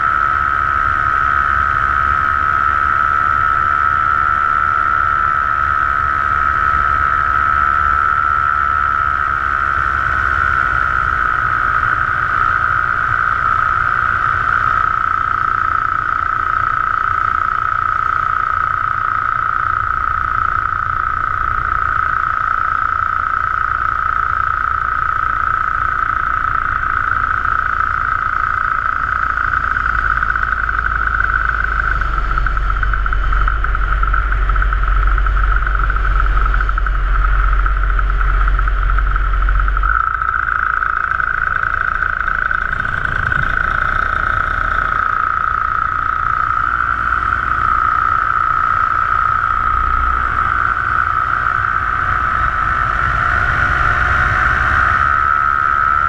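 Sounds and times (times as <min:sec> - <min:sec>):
low rumble: 0:00.0 - 0:56.0
paramotor engine droning: 0:00.0 - 0:56.0.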